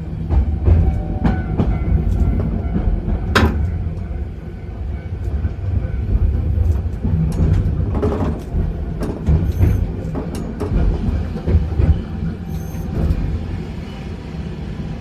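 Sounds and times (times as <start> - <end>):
sharp clicks of tram wheels: 0.0 - 13.6
tram rumbling on track: 0.0 - 15.0.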